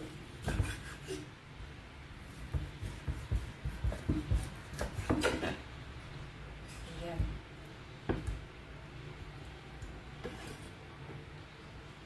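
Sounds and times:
knife cutting meat on wood: 0.0s - 1.3s.

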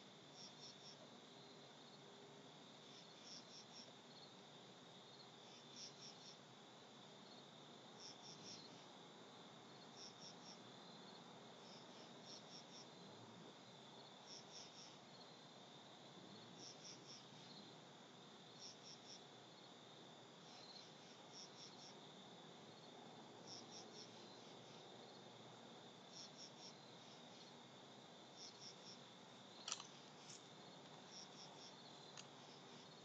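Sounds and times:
faint insect drone: 0.0s - 33.0s
insect high chirps: 28.4s - 30.5s.

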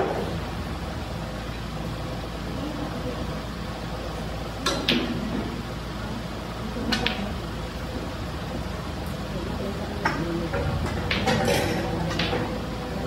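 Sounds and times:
room hum: 0.0s - 13.0s
snooker balls clicking: 6.8s - 7.3s, 10.0s - 12.6s.

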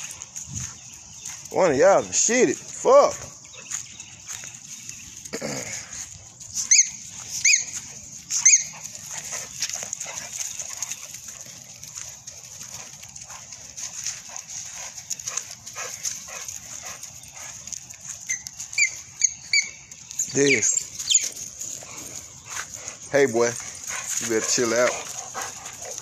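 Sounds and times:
dogs scuffling on leaves: 0.0s - 26.0s
high-pitched dog cries: 6.6s - 8.7s.

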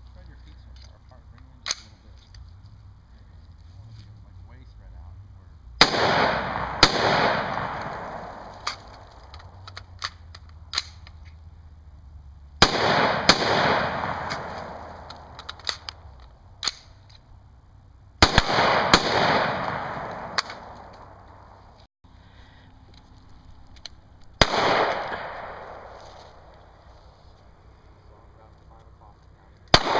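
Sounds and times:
pistol shots echoing: 5.8s - 9.1s, 12.6s - 15.9s, 18.2s - 21.3s, 24.4s - 26.0s
faint sharp cracks: 5.8s - 11.4s, 12.6s - 17.2s, 18.2s - 21.9s, 22.9s - 26.9s.

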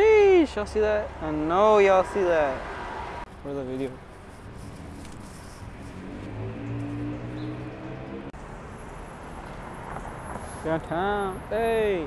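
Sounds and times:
city street traffic: 0.0s - 12.0s
car engine humming: 4.3s - 10.6s.

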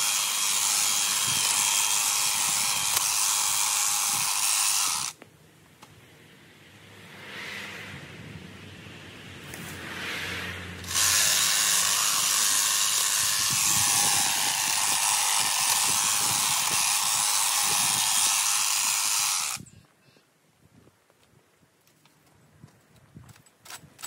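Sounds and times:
hedge trimmer cutting: 0.0s - 5.2s, 10.8s - 19.6s.

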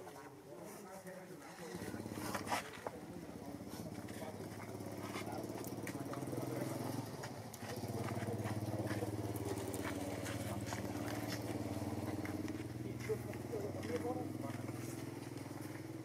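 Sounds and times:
engine running: 3.4s - 16.0s.

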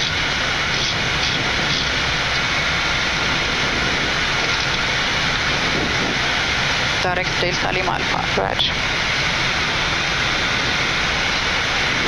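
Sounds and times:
aircraft airflow and engines rushing: 0.0s - 12.0s.

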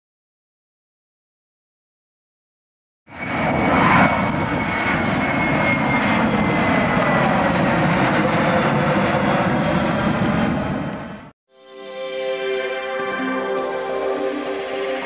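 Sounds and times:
jet airliner flying over: 3.1s - 11.3s.

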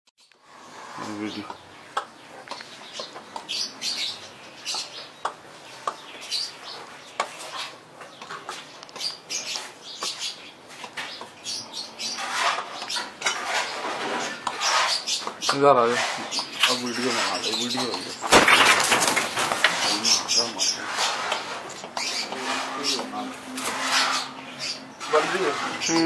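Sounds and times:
birds chirping: 0.2s - 26.0s
rustling: 15.9s - 24.4s.

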